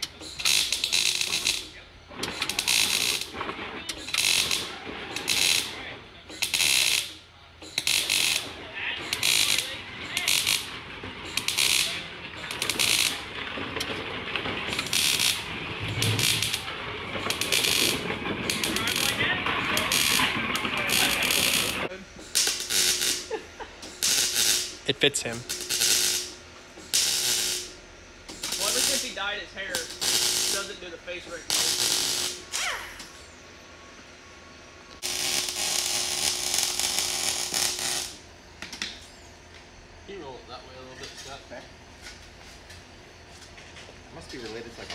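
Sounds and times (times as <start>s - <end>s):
welder arc crackling: 9.1s - 10.7s, 11.3s - 13.2s, 14.7s - 23.3s, 23.9s - 27.7s, 28.3s - 30.7s, 31.4s - 32.5s, 35.0s - 38.2s.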